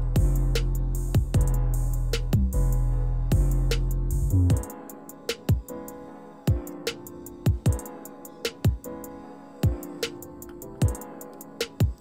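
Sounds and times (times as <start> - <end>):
heavy bass line: 0.0 - 4.6
electronic beat music: 0.0 - 12.0.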